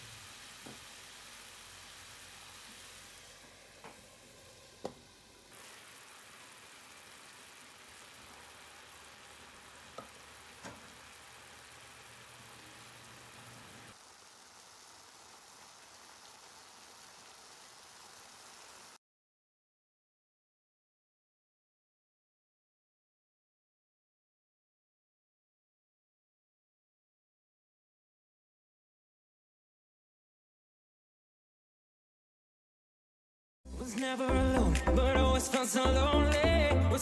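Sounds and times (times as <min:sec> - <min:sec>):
faint sizzle in pan: 0:00.0 - 0:19.0.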